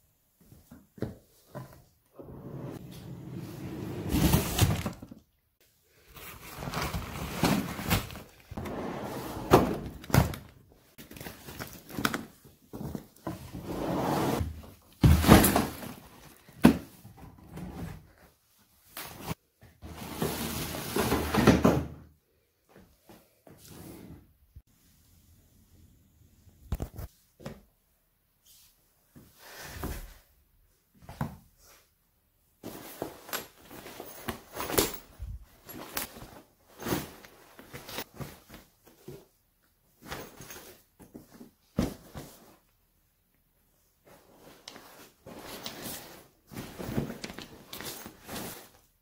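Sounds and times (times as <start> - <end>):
objects rustling and scraping: 32.6 - 42.7, 44.0 - 49.0.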